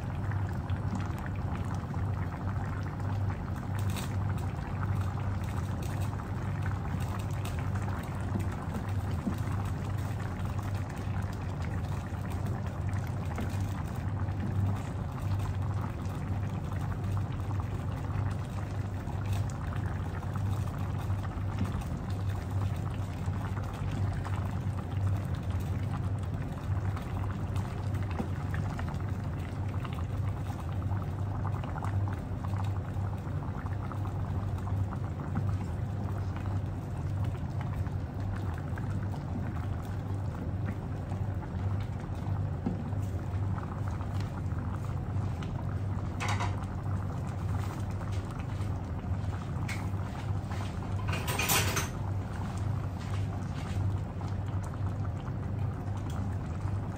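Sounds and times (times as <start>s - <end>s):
coconut cream bubbling in a pan: 0.0s - 56.9s.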